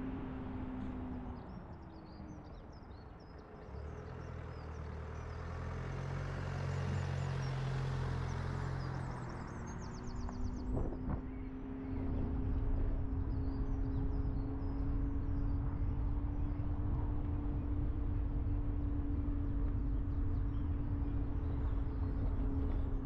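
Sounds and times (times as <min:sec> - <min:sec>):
car engine and tyre noise: 0:00.0 - 0:23.0
small birds chirping: 0:06.6 - 0:16.8.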